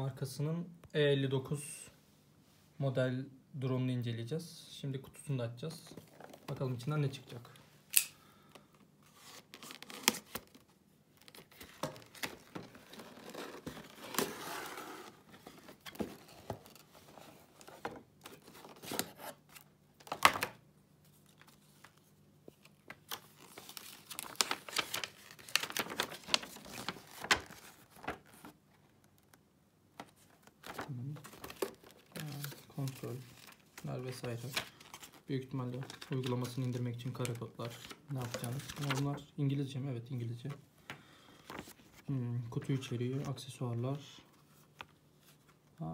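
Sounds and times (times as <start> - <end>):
paper rustling and crinkling: 9.0 - 20.4, 21.1 - 29.3, 30.0 - 39.2, 41.4 - 42.1.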